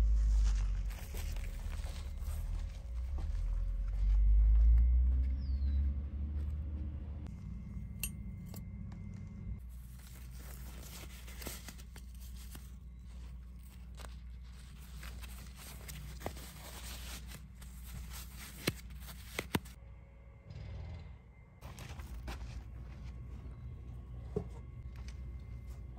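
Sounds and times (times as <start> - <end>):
gloves rustling and crinkling: 0.0 - 3.4, 9.6 - 19.8.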